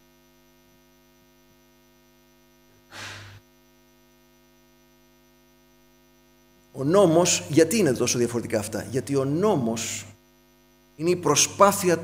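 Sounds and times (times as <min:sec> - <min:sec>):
faint electrical mains hum: 0:00.0 - 0:12.0
short burst of noise: 0:02.9 - 0:03.4.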